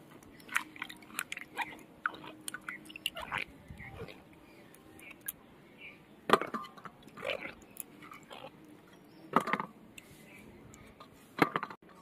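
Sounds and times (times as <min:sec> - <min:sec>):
hands splashing in bowl of water: 0:00.4 - 0:03.4.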